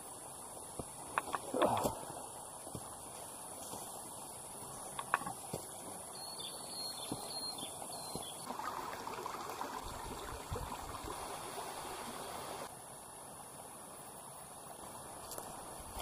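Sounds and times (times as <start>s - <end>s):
stream water over rocks: 0.0s - 16.0s.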